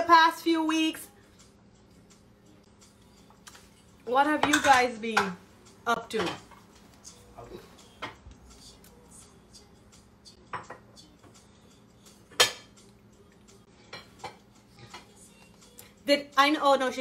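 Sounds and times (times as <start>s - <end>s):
dishes and utensils clinking: 4.3s - 5.4s, 6.0s - 6.7s, 10.4s - 11.0s, 12.3s - 12.8s, 13.8s - 15.1s.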